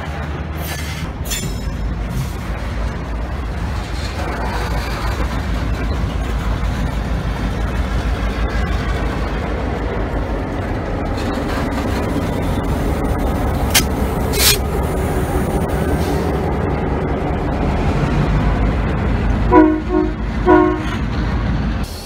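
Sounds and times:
diesel locomotive rumbling past: 0.0s - 22.0s
freight cars rolling: 0.0s - 22.0s
locomotive horn blasts: 19.5s - 21.0s.

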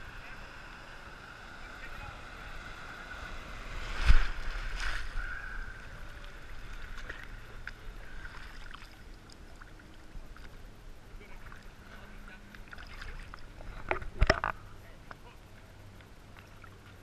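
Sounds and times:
water lapping and sloshing: 0.0s - 17.0s
water splashing on camera: 2.3s - 14.7s.

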